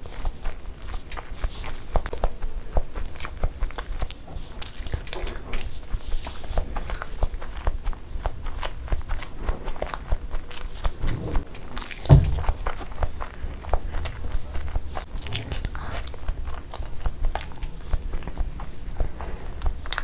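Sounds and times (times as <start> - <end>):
close chewing and biting: 0.0 - 20.0
dull low thump: 10.9 - 13.1.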